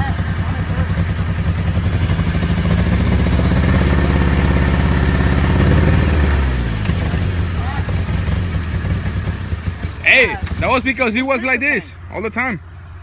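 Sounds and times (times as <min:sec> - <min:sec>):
buggy engine running hard: 0:00.0 - 0:13.0.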